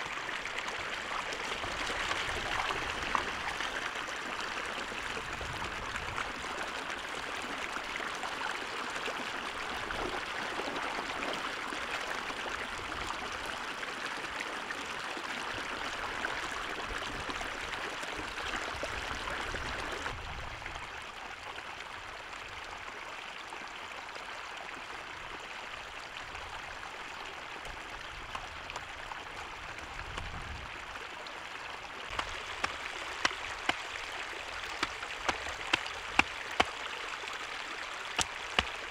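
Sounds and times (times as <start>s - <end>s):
water rushing and splashing: 0.0s - 14.4s, 27.6s - 38.9s.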